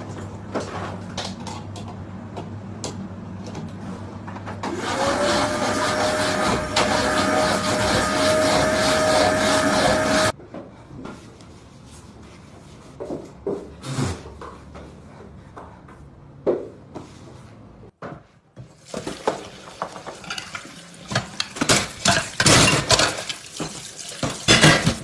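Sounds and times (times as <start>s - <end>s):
dishes and cutlery clattering: 19.8s - 25.0s.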